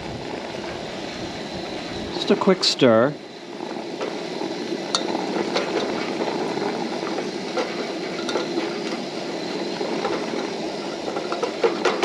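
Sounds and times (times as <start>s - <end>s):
camp stove burner hissing: 0.0s - 12.0s.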